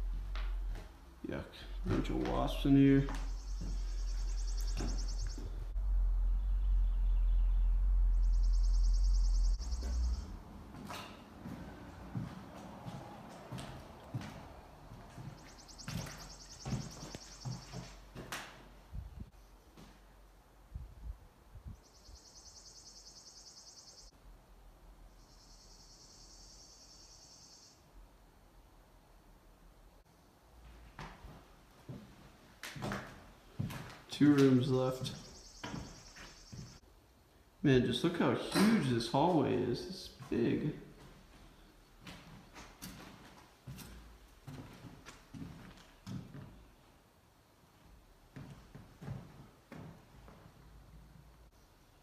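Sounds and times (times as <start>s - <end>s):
low microphone rumble: 3.5s - 10.7s
insect trilling: 8.1s - 9.9s.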